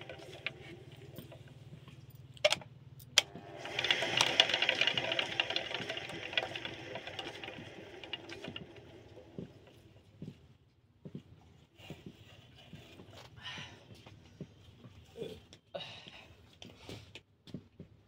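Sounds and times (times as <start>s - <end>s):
potter's wheel humming: 0.0s - 2.1s, 3.1s - 10.4s.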